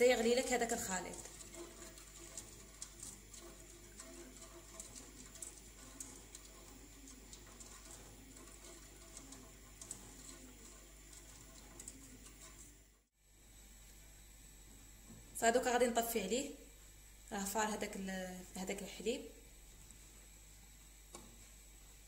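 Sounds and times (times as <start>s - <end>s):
whisk scraping a metal pan: 0.0s - 12.8s.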